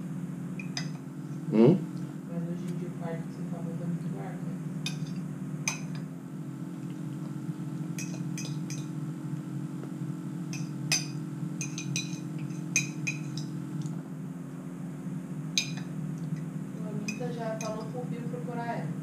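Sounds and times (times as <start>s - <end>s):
steady low hum: 0.0s - 19.0s
spoon clinking against dish: 4.8s - 6.0s, 8.0s - 8.9s, 10.5s - 13.5s, 15.6s - 15.9s, 17.0s - 17.9s.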